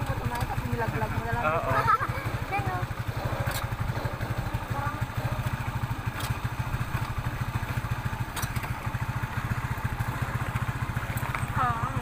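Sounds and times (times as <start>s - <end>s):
small motorcycle engine running: 0.0s - 12.0s
sharp clicks: 6.1s - 6.4s.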